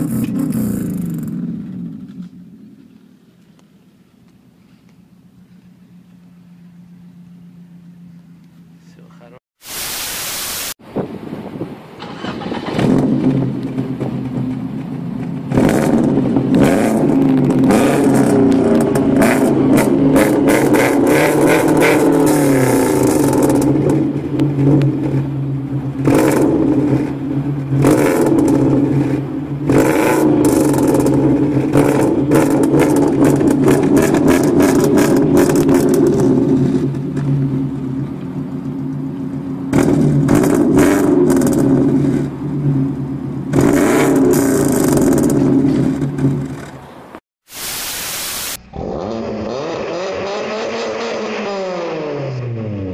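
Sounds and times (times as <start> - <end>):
static hiss: 9.6 - 10.8, 47.5 - 48.7
car engine revving: 12.0 - 46.8, 48.4 - 52.9.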